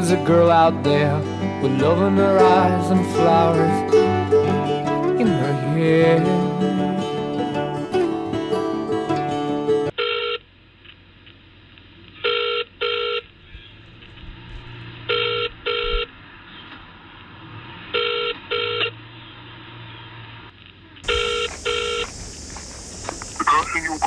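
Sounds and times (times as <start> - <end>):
music: 0.0 - 9.9
telephone ringing tone: 10.0 - 10.4, 12.2 - 13.3, 15.1 - 16.1, 17.9 - 18.9, 21.0 - 22.1
faint line hum and hiss: 20.5 - 24.0.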